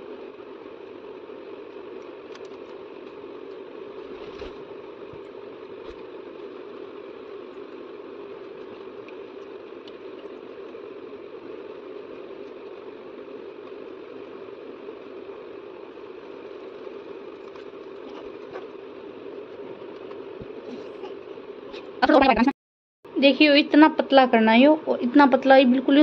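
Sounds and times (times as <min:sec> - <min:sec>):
steady machine hum: 0:00.0 - 0:26.0.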